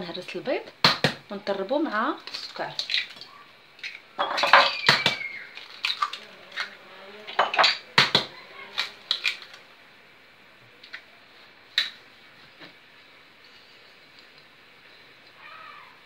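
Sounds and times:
eggs cracking on a bowl: 0:02.2 - 0:09.6.

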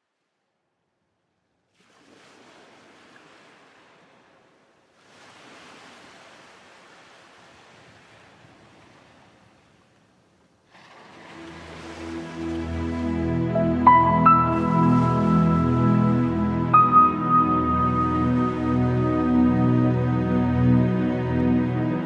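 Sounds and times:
soft music: 0:11.1 - 0:22.0.

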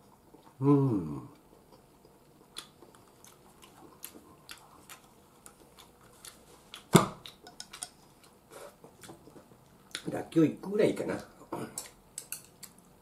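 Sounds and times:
chewing: 0:01.3 - 0:10.1.

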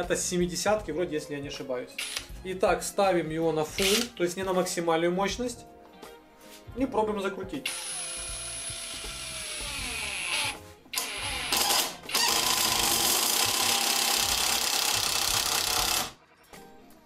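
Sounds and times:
impact wrench motor whining: 0:07.7 - 0:16.2.

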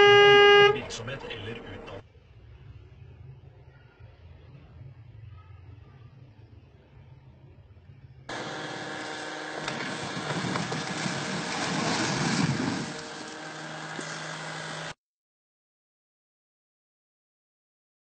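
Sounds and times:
faint low hum: 0:00.8 - 0:08.3
engine noise with rushing: 0:08.3 - 0:15.0.

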